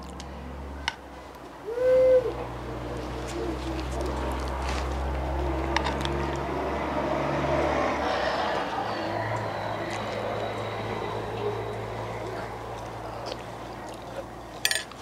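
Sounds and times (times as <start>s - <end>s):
vehicle engine humming: 0.0s - 15.0s
spoon clinking against clay bowl: 14.6s - 15.0s.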